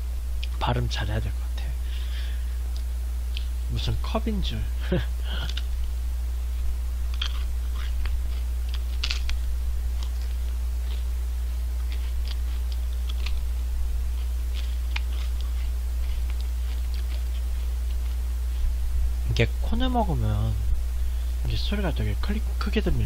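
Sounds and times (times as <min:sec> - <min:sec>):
steady low hum: 0:00.0 - 0:23.0
wafer cone crunching: 0:07.1 - 0:18.7.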